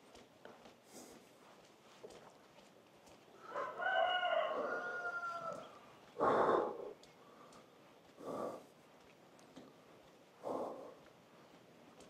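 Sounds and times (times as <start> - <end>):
rooster crowing: 3.4 - 5.8.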